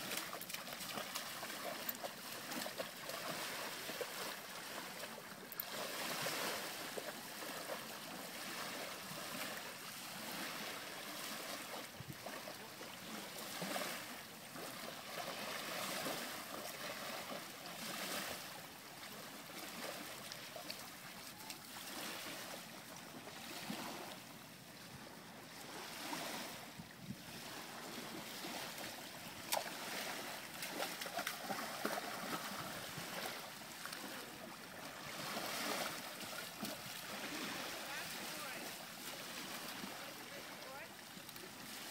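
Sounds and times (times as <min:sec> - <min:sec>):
dog splashing through water: 0:00.0 - 0:09.5, 0:28.8 - 0:34.3
small waves lapping: 0:00.0 - 0:41.9.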